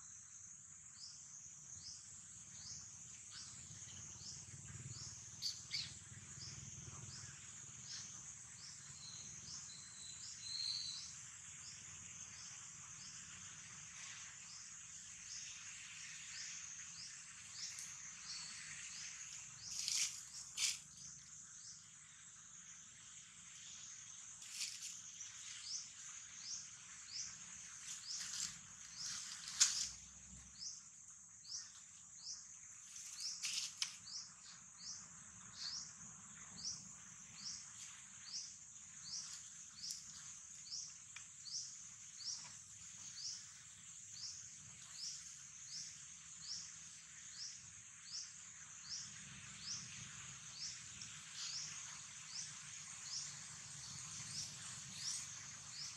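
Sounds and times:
insects buzzing: 0.0 - 55.9
short insect chirp: 0.0 - 55.9
rustling: 19.7 - 20.8, 33.0 - 34.0.

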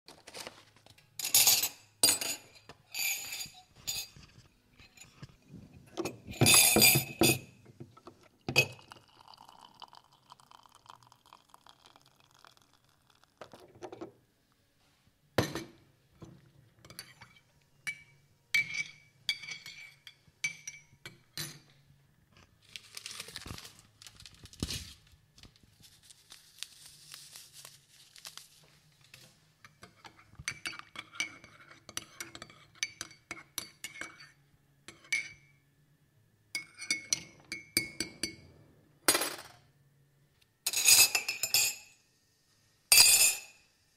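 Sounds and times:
china cups clinking: 6.0 - 7.5, 8.5 - 13.6
spoon clinking against cup: 6.0 - 7.5, 8.5 - 13.5, 36.6 - 38.4
water poured into a cup: 8.4 - 14.0.

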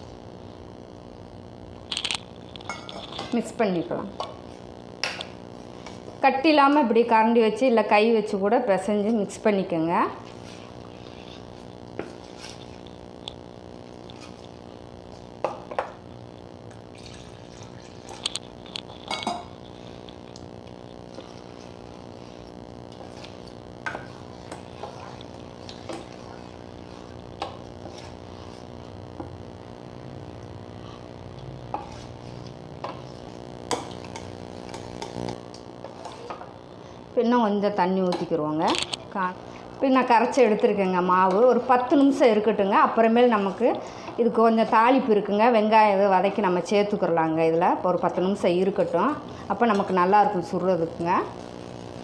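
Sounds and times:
spoon stirring batter: 8.9 - 13.0, 17.0 - 29.4, 30.8 - 36.5
low hum: 10.1 - 39.9
metal spoon stirring batter: 21.1 - 28.7.

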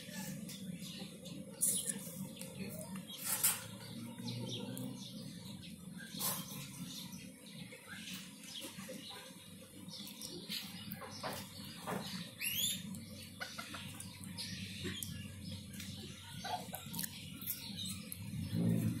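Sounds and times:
chickens clucking: 7.9 - 19.0.

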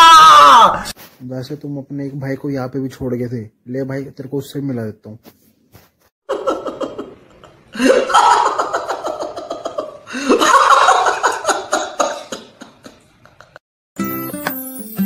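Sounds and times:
man laughing: 6.3 - 13.6.

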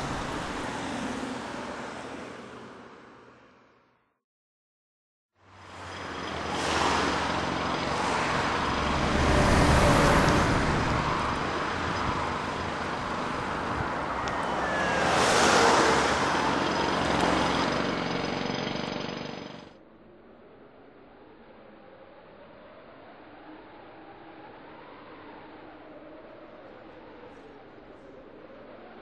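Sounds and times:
vehicles passing close: 0.0 - 3.6, 5.4 - 19.7
road traffic noise: 0.0 - 3.8, 5.4 - 19.8.

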